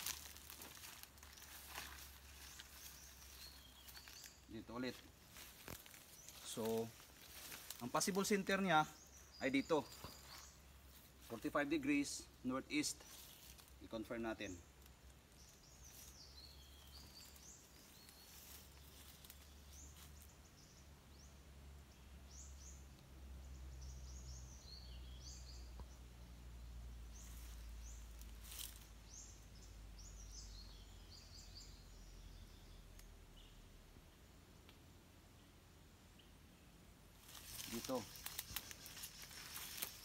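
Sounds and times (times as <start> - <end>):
faint rustles: 0.0 - 8.4, 15.3 - 20.3, 27.1 - 29.3, 37.2 - 40.0.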